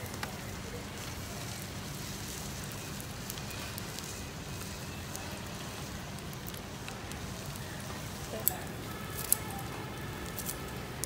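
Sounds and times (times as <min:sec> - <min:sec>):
sea snails sizzling on a grill: 0:00.0 - 0:11.0.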